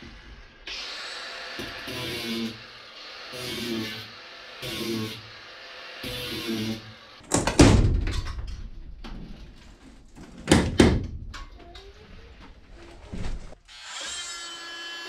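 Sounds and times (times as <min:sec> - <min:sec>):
power tool running: 0:00.0 - 0:07.2, 0:13.6 - 0:15.0
wood knocking on wall framing: 0:07.3 - 0:08.4, 0:10.3 - 0:11.4.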